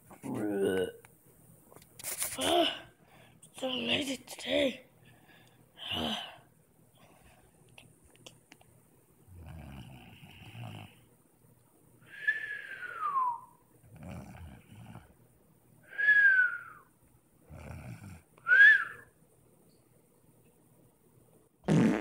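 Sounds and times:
falling whistle: 0:12.2 - 0:13.6, 0:18.5 - 0:19.1.

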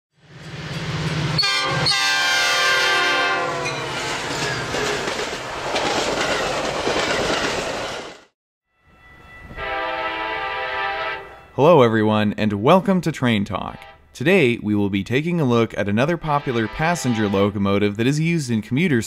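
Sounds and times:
train rumble: 0:00.2 - 0:08.3
train horn blast: 0:01.3 - 0:04.2, 0:09.4 - 0:11.5, 0:13.6 - 0:14.2, 0:16.2 - 0:17.6
wheel and rail noise: 0:03.5 - 0:08.3.

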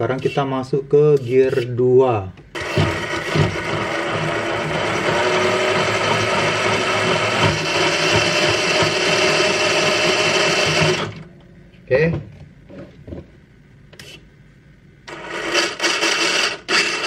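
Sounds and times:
electric motor whirr with gear whine: 0:02.6 - 0:11.3, 0:15.1 - 0:17.0.

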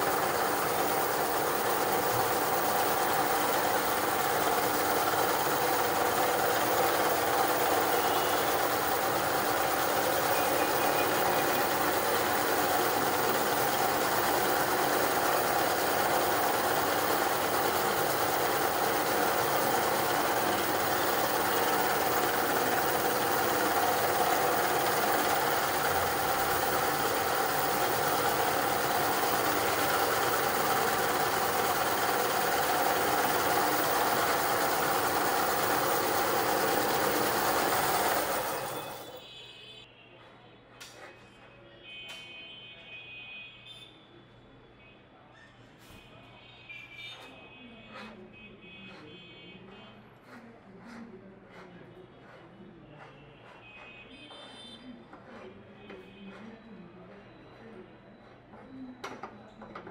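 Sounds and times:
meat grinder motor humming: 0:00.0 - 0:39.2.

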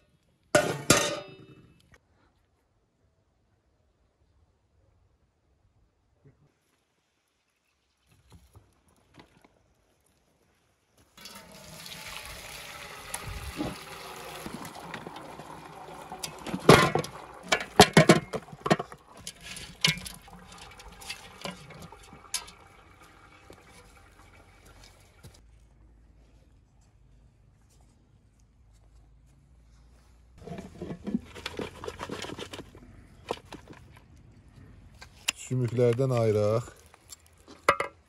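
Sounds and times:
bones clanging against metal basin: 0:00.6 - 0:01.5, 0:16.2 - 0:22.7
broth pouring and splashing: 0:11.2 - 0:25.4.

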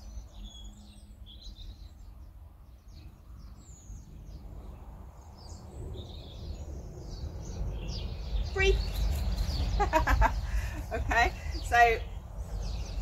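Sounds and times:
small birds chirping: 0:00.0 - 0:13.0
wind on microphone: 0:03.9 - 0:13.0.

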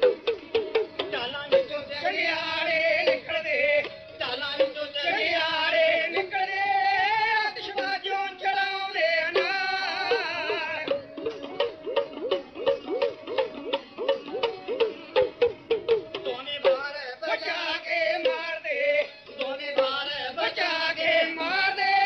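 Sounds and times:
hand drum strokes: 0:00.0 - 0:04.0, 0:09.3 - 0:16.9.

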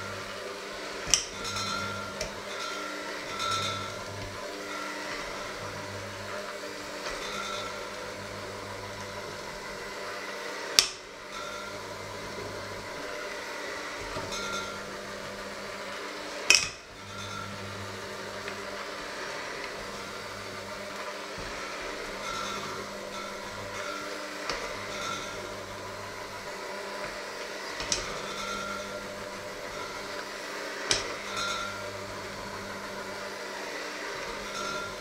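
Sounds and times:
electric hand mixer running: 0:00.0 - 0:35.0
beaters clanking against steel bowl: 0:01.1 - 0:04.4.

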